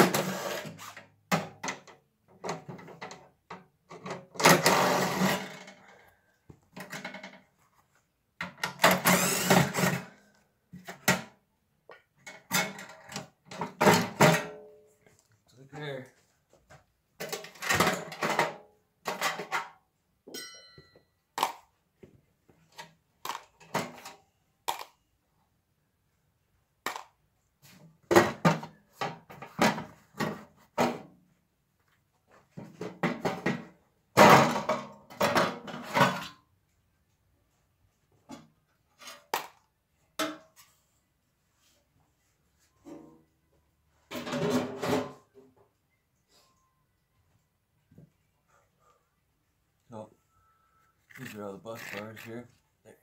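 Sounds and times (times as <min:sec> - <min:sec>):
sheet metal cover clanking: 0:44.1 - 0:45.3.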